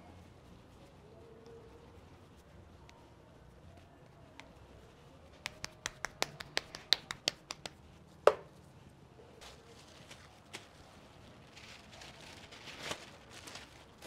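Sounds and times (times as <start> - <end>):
hands slapping dough: 5.4 - 8.5
dough knocking onto press: 8.3 - 8.5.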